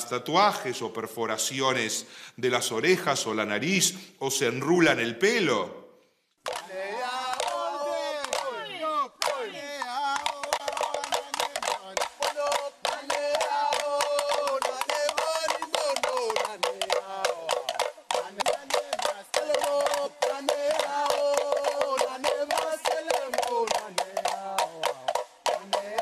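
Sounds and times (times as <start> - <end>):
sticks striking bamboo tubes: 6.4 - 8.5, 9.2 - 26.0.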